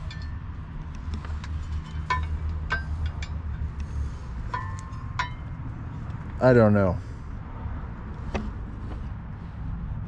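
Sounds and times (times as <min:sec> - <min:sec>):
metal hardware clinking: 0:00.0 - 0:05.6
steady low hum: 0:00.0 - 0:10.0.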